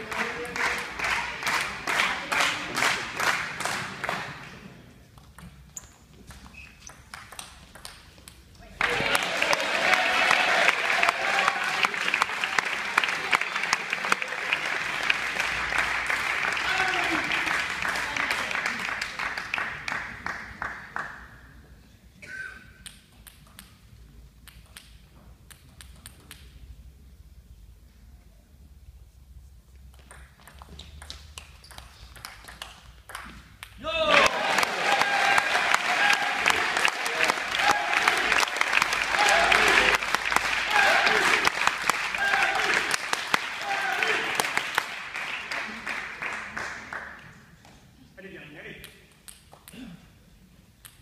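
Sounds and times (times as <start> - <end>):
applause: 0.0 - 4.6, 8.8 - 21.4, 34.1 - 47.5
crowd clapping in rhythm: 0.0 - 5.2, 7.0 - 21.6, 30.0 - 47.8
table tennis ball bouncing: 5.2 - 8.5, 29.9 - 33.8
table tennis ball clicks: 5.2 - 8.5.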